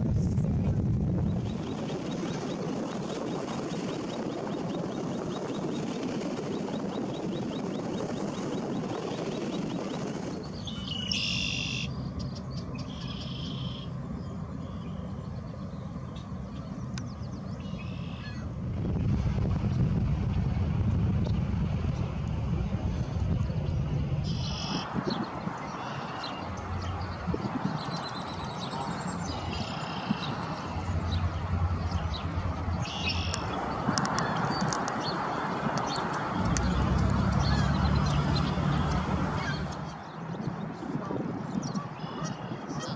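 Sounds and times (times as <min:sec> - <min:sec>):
outdoor background noise: 0:00.0 - 0:42.9
small birds calling: 0:10.5 - 0:18.5, 0:24.2 - 0:40.6, 0:41.5 - 0:42.9.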